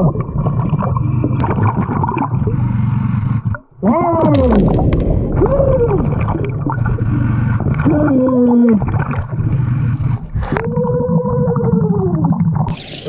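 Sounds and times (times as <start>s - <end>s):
underwater rumble of moving water: 5.1s - 12.7s.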